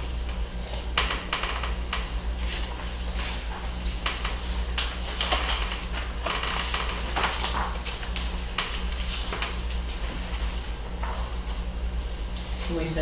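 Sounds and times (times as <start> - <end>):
steady low hum: 0.0 - 13.0
paper rustling and pages turning: 2.0 - 11.7.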